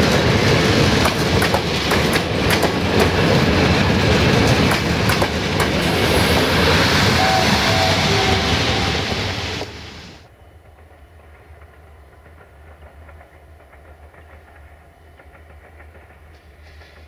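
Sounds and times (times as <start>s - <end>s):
passenger coaches rumbling past: 0.0s - 12.1s
distant diesel locomotive hum: 0.0s - 17.0s.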